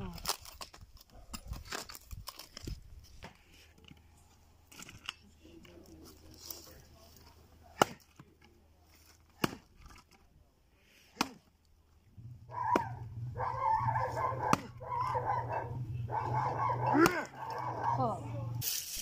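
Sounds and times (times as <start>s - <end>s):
adze chopping wood: 7.7s - 8.3s, 9.2s - 10.1s, 11.1s - 11.5s, 12.5s - 13.0s, 14.1s - 15.2s, 16.6s - 17.7s
steady low hum: 11.9s - 18.6s.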